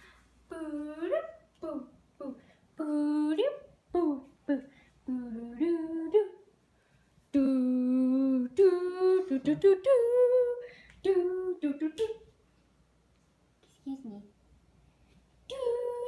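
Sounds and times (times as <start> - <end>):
woman humming and singing: 0.5 - 6.4, 15.5 - 16.0.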